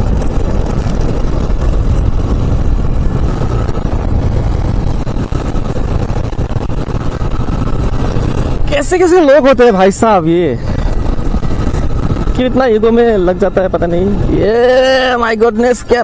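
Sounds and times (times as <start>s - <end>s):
wind noise on microphone: 0.0s - 16.0s.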